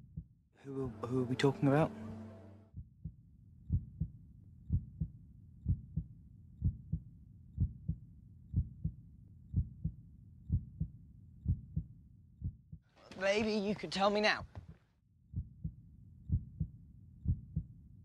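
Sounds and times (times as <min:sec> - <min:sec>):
heartbeat thumps: 0:02.8 - 0:04.1, 0:04.7 - 0:07.0, 0:07.6 - 0:12.8, 0:15.4 - 0:17.7.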